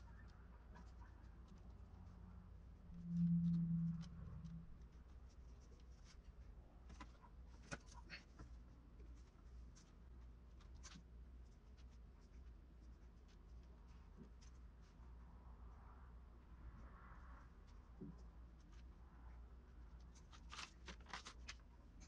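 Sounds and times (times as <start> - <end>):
brief low hum: 2.8 - 5.0.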